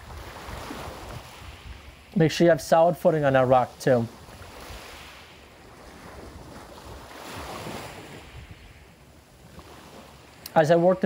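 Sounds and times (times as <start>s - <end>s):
wind on microphone: 0.0s - 2.2s, 4.1s - 10.1s
small waves washing against rocks: 4.1s - 8.8s.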